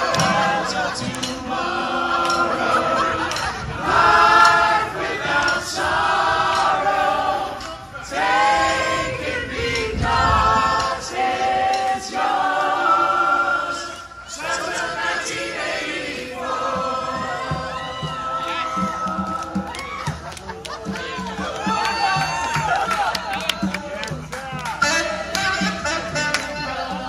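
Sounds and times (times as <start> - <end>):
crowd singing a rock refrain: 0.0 - 19.8.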